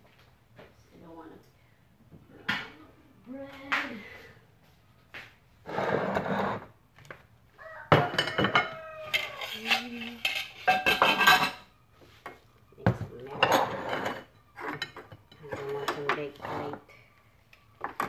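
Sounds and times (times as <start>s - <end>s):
plates and utensils clattering: 7.9s - 16.9s, 17.8s - 18.0s.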